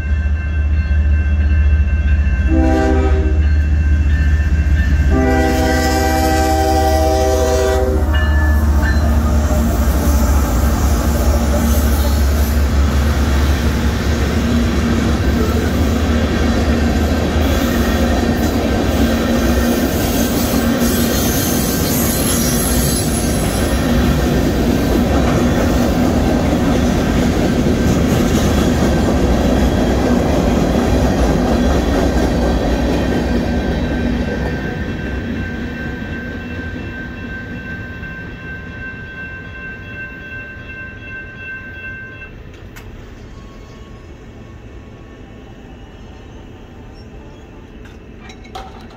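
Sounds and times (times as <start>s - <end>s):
crossing bell ringing tone: 0.0s - 13.8s, 33.8s - 44.2s
train wheels rumbling on rails: 0.0s - 48.9s.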